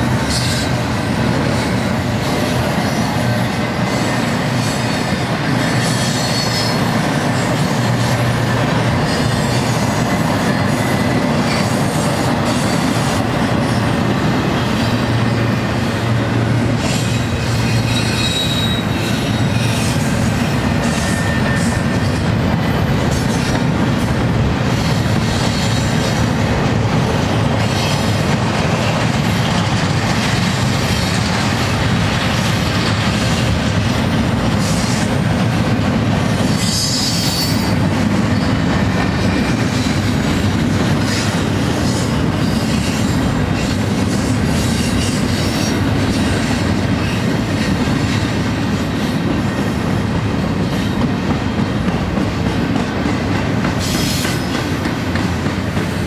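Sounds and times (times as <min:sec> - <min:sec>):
train wheels rumbling on rail: 0:00.0 - 0:56.0
high-pitched wheel squeal: 0:16.8 - 0:19.9, 0:20.8 - 0:22.2.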